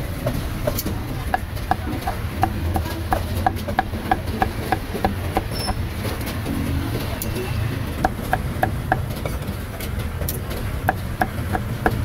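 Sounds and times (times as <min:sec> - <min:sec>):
cleaver chopping on wooden block: 0:00.6 - 0:05.8, 0:10.9 - 0:12.0.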